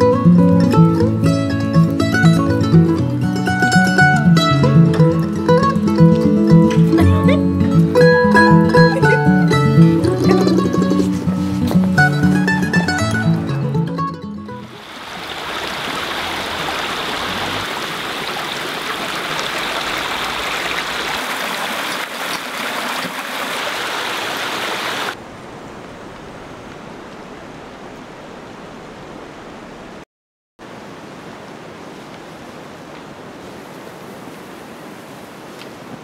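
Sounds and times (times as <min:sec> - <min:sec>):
faint outdoor hiss: 0:00.0 - 0:13.9, 0:14.6 - 0:30.0, 0:30.6 - 0:36.0
stream water rushing over rocks: 0:14.6 - 0:30.0.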